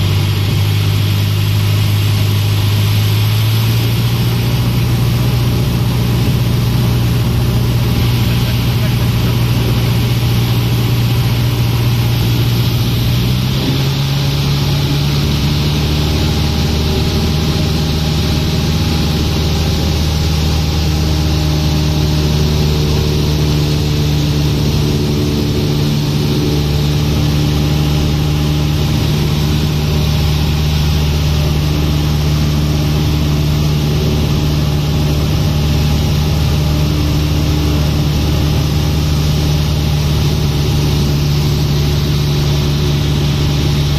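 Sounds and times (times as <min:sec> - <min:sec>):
airplane engine and propeller droning: 0:00.0 - 0:43.9.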